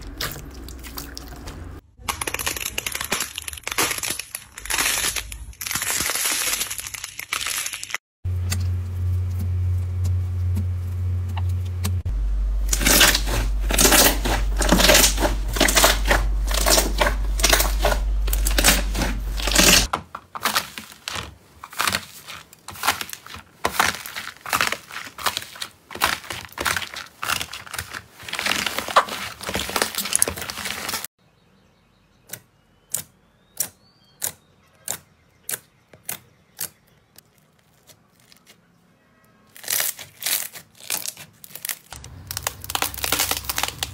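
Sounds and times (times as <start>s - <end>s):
slime crackling and popping: 2.0s - 8.0s, 12.7s - 19.9s, 39.5s - 43.9s
low steady hum: 8.3s - 19.9s.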